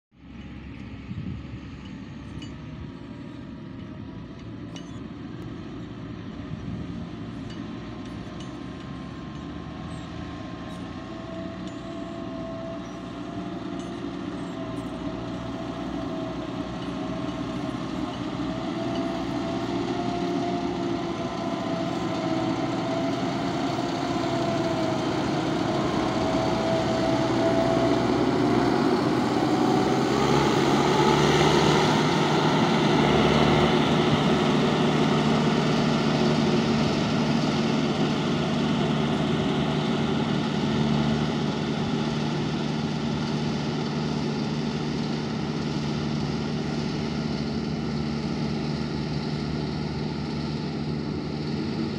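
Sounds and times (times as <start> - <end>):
diesel engine running under load: 0.2 - 51.9
steady machine whine: 10.6 - 51.9.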